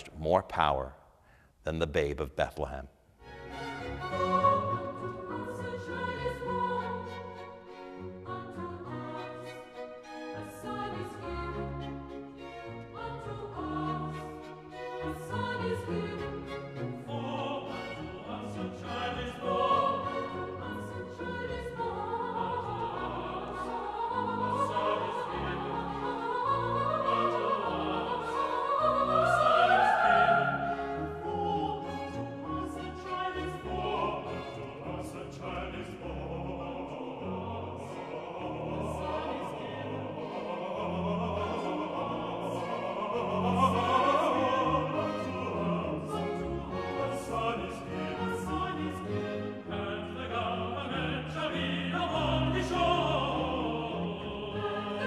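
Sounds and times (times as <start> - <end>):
singing voices: 12.9 - 55.0
orchestra playing: 22.8 - 35.0.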